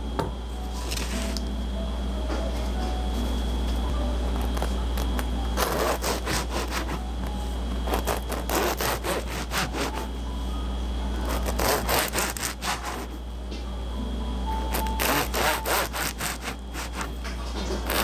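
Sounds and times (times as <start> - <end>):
bread knife sawing through baguette: 5.6 - 7.0, 7.9 - 10.1, 11.2 - 13.2, 14.7 - 17.2, 17.8 - 18.0.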